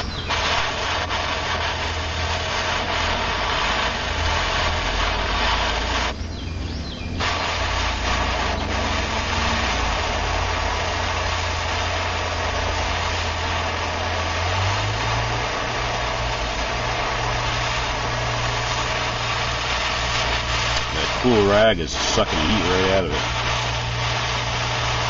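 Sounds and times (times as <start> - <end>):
gas torch hissing: 0.0 - 25.0.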